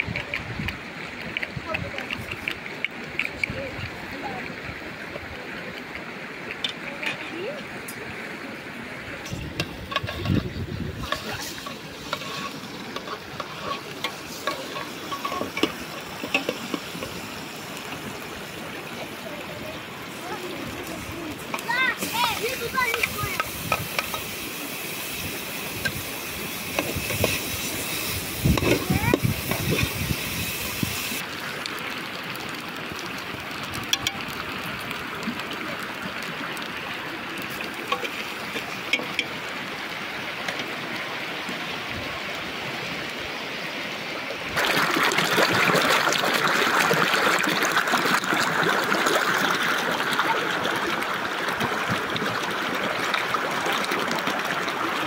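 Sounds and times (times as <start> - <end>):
stream rushing: 0.0 - 55.0
voices: 0.1 - 30.1.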